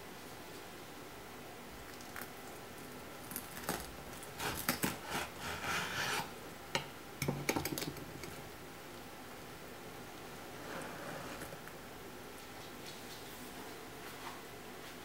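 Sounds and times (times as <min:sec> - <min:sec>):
knife crunching through toasted bread: 0:03.2 - 0:06.2
knife scraping cutting board: 0:04.4 - 0:06.3, 0:10.6 - 0:11.6.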